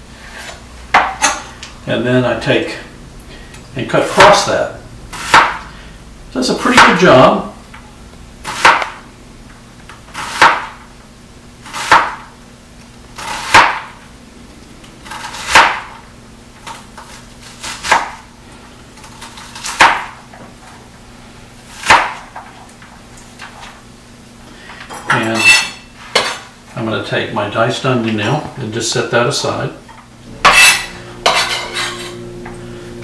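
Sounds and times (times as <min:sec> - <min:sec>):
knife chopping on cutting board: 0:05.2 - 0:05.6, 0:08.4 - 0:09.0, 0:10.2 - 0:10.8, 0:11.7 - 0:12.3, 0:13.2 - 0:13.9, 0:15.0 - 0:15.9, 0:17.6 - 0:18.2, 0:19.6 - 0:20.2, 0:21.8 - 0:22.3, 0:30.4 - 0:32.1.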